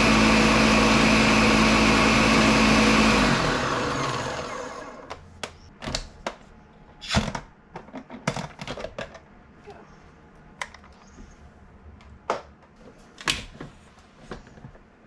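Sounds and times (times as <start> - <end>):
blender motor spinning down: 0.0 - 5.1.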